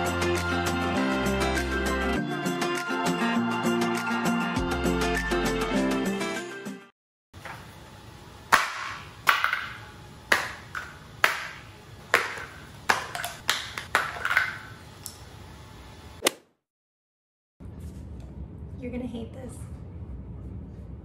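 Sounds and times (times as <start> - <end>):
plastic bottles dropped on hard floor: 12.2 - 14.7.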